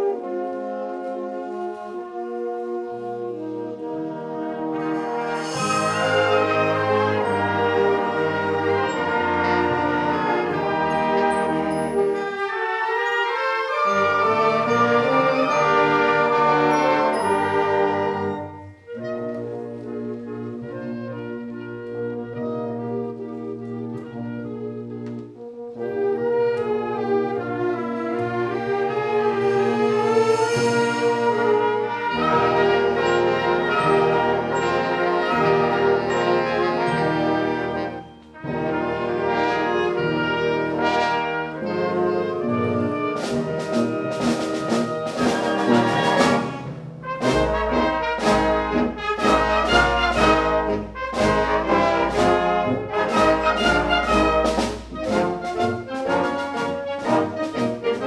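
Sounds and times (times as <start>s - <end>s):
wind band playing: 0.0s - 58.0s
drum and cymbal strokes: 29.5s - 31.7s.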